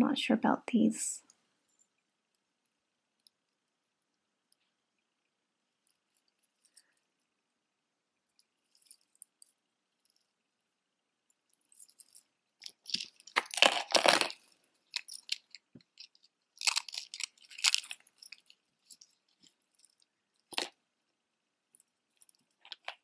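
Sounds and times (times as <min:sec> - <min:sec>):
chains and beads clinking: 0:11.6 - 0:20.7.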